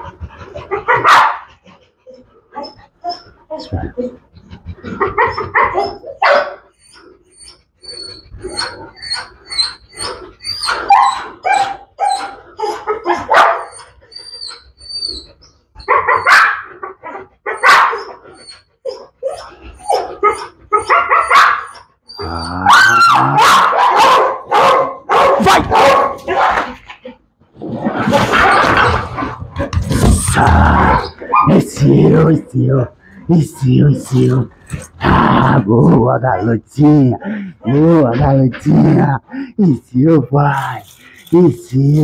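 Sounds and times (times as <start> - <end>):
dog barking: 0.8 - 1.5, 5.1 - 6.6, 10.8 - 13.8, 15.9 - 18.2, 20.0 - 21.8, 22.6 - 26.8, 30.9 - 31.5.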